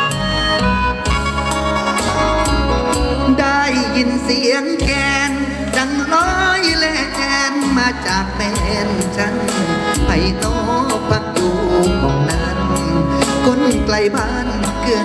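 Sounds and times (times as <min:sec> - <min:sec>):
amplified folk pop music: 0:00.0 - 0:15.0.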